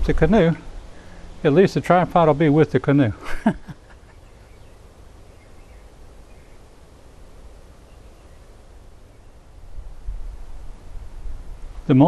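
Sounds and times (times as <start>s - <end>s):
faint bird chirps: 3.8s - 9.5s.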